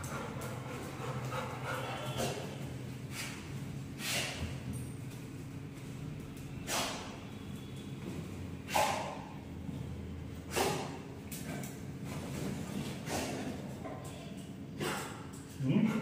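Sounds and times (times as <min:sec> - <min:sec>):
dog sniffing huffs: 0:00.0 - 0:04.5, 0:06.6 - 0:07.1, 0:08.6 - 0:09.3, 0:10.5 - 0:11.0, 0:13.0 - 0:13.5, 0:14.8 - 0:15.2.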